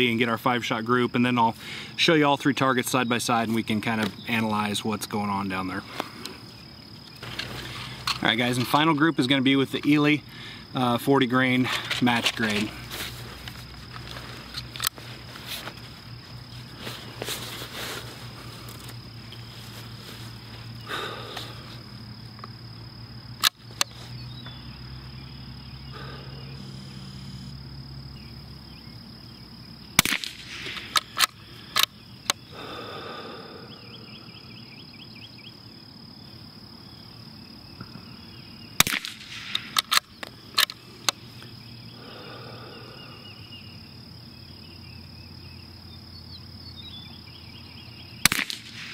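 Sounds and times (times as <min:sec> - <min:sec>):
rifle shots: 0:30.0 - 0:31.3, 0:38.8 - 0:40.0, 0:48.2 - 0:48.9
rifle bolt clicks: 0:38.8 - 0:40.0.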